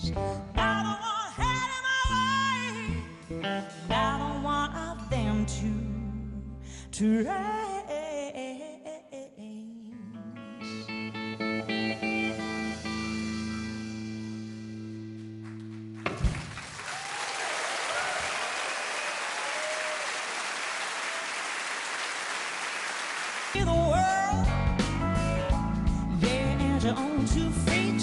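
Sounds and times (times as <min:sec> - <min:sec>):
audience applause: 0:15.4 - 0:23.6
audience cheering: 0:16.2 - 0:23.6.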